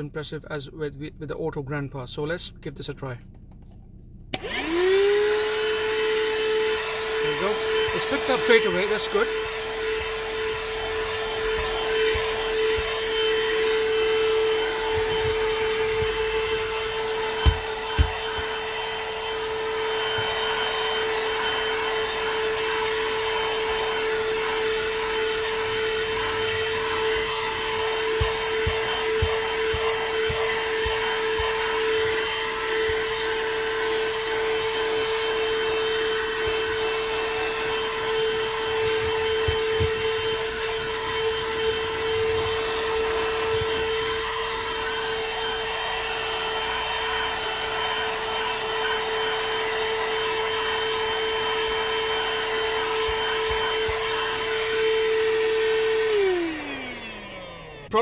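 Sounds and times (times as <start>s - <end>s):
vacuum cleaner motor whine: 4.3s - 58.0s
nozzle knocking on mat: 17.4s - 18.5s, 28.0s - 31.6s.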